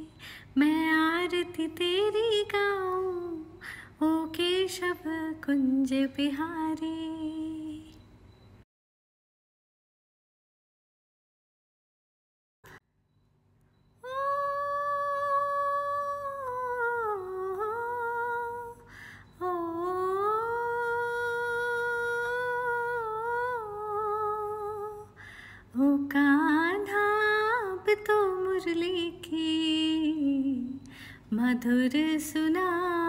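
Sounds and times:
woman humming: 0:14.0 - 0:18.8.

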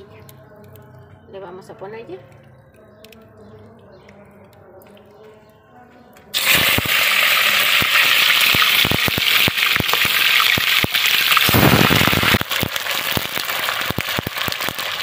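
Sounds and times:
crackling and spitting pops: 0:06.3 - 0:15.0
meat sizzling in hot oil: 0:06.4 - 0:15.0.

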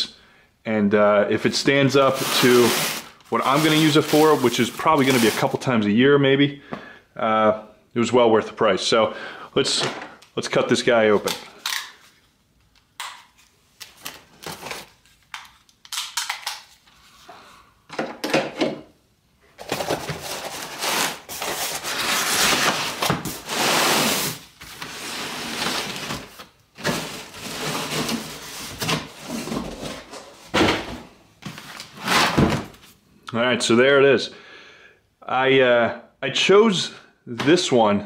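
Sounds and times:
cardboard rubbing and scraping: 0:02.0 - 0:05.5, 0:19.8 - 0:30.4.

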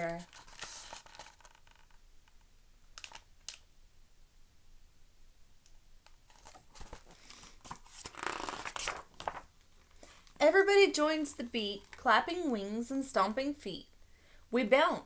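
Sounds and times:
page turning with paper rustling: 0:00.0 - 0:02.0, 0:06.3 - 0:10.4.

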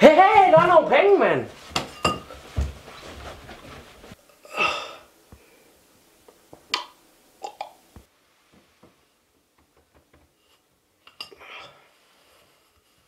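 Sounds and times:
breathy gasp: 0:04.4 - 0:05.7.

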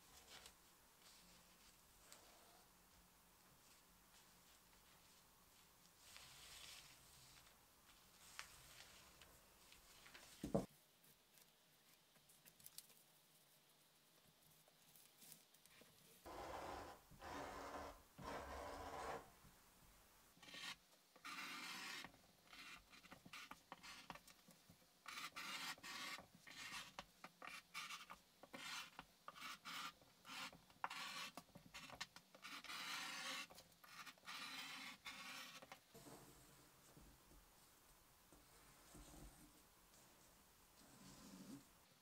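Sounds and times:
paper and fabric rubbing on table: 0:16.3 - 0:19.3, 0:25.1 - 0:35.8
marker pen scratching: 0:20.4 - 0:24.2, 0:25.0 - 0:35.8.

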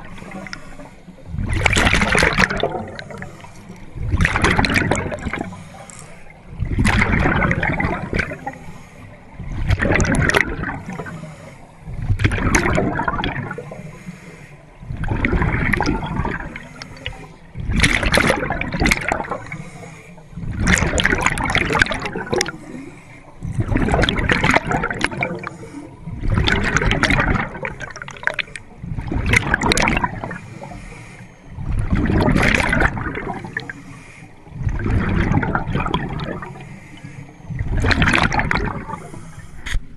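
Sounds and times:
bubbles rushing and gurgling: 0:00.0 - 0:39.8
underwater regulator breathing: 0:00.0 - 0:39.9.

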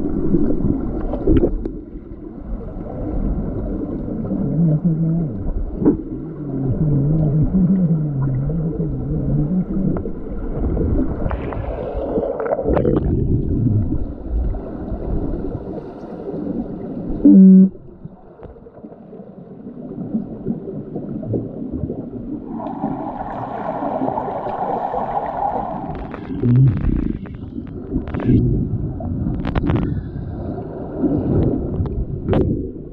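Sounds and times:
muffled underwater rumbling: 0:00.0 - 0:32.9
wavering low hum: 0:04.2 - 0:11.1.

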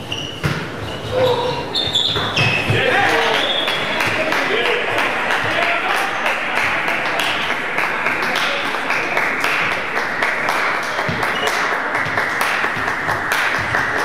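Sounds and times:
crowd applauding: 0:02.8 - 0:14.0.

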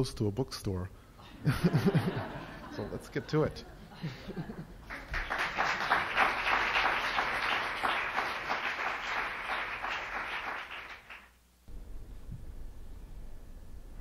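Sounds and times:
audience applauding: 0:04.8 - 0:11.4.

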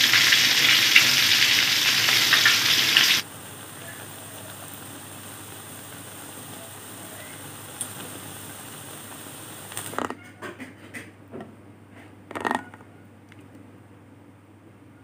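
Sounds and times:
bananas sizzling in hot oil: 0:00.0 - 0:10.0.

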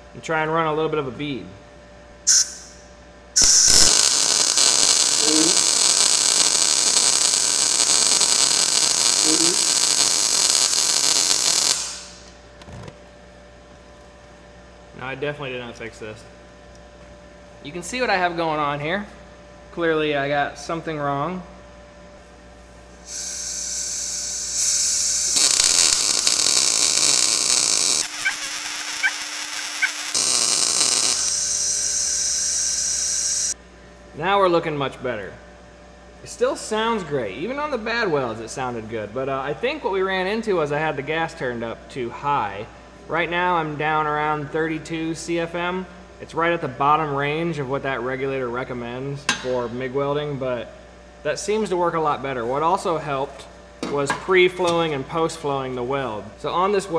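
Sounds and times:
welding arc crackling: 0:03.4 - 0:12.4, 0:23.0 - 0:33.6.

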